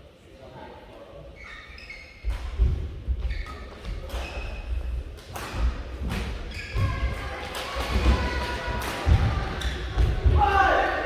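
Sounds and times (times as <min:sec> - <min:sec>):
shoe squeaks: 0:01.3 - 0:02.6, 0:03.2 - 0:05.0, 0:06.4 - 0:07.1
racket hitting shuttlecock: 0:05.2 - 0:06.9.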